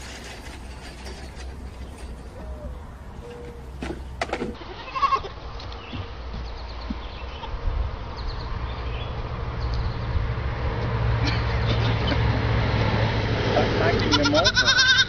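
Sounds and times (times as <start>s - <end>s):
goats bleating: 4.6s - 5.4s, 14.0s - 15.0s.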